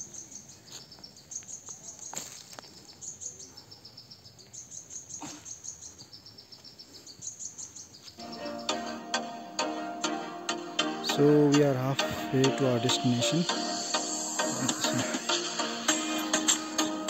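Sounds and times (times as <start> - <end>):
insects chirring in pulsed trills: 2.9 - 11.0.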